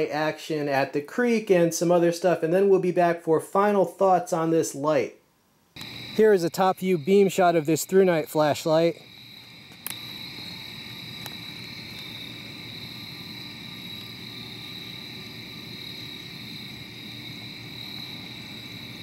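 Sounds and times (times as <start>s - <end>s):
night insects trilling: 5.8s - 19.0s.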